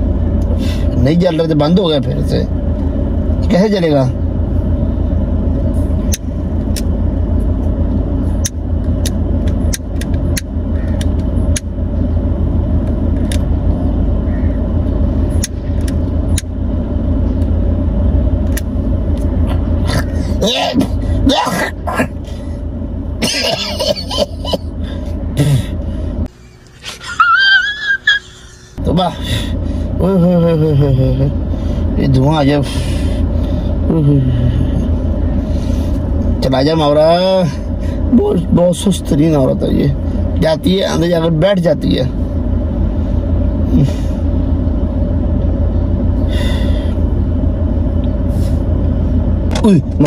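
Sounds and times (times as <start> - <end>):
car engine hum: 0.0 - 50.0
man coughing: 19.8 - 22.2, 23.2 - 24.8, 25.4 - 25.8.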